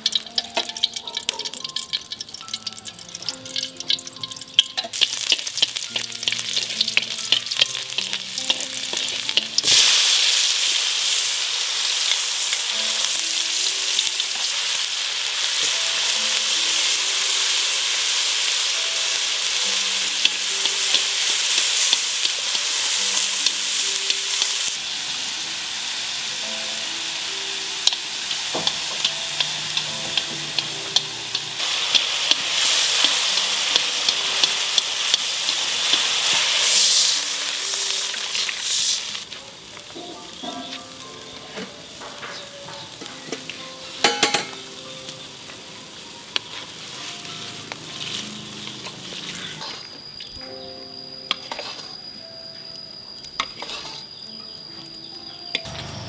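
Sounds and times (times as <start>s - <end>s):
sharp utensil clicks: 0.0s - 9.4s, 27.8s - 32.4s
food sizzling in hot oil: 0.0s - 50.4s, 51.3s - 52.3s, 53.3s - 54.3s.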